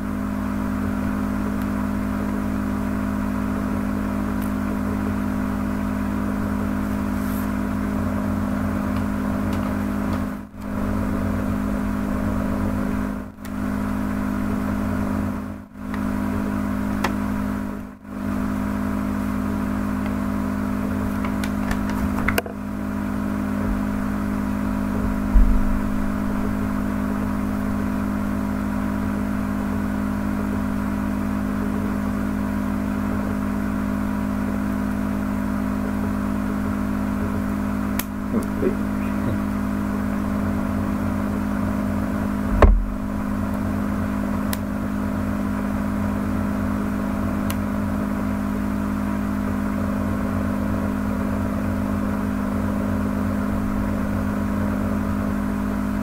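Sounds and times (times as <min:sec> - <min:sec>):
droning hum with held tones: 0:00.0 - 0:56.0
loud thump: 0:42.5 - 0:43.1.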